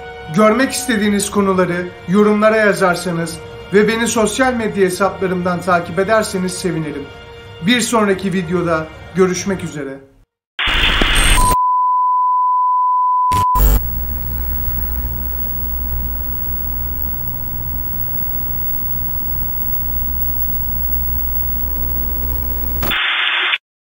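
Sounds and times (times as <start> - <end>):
burst of static: 10.6 - 11.6, 13.3 - 23.6
steady high beep: 13.3 - 23.0
click: 13.4 - 23.0
low steady hum: 13.6 - 23.0.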